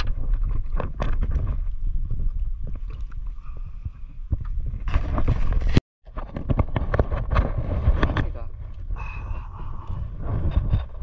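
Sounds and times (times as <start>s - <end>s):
wind on microphone: 0.0s - 11.0s.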